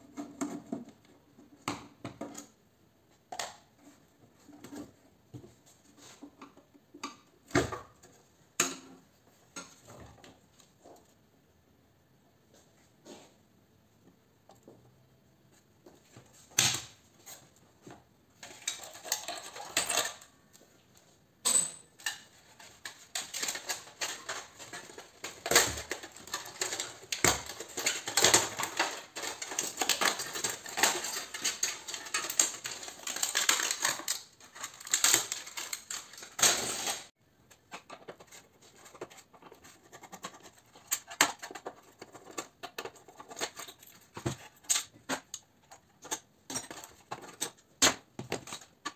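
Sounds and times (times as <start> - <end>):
metal crinkling and rattling: 18.4 - 20.4, 21.8 - 48.9.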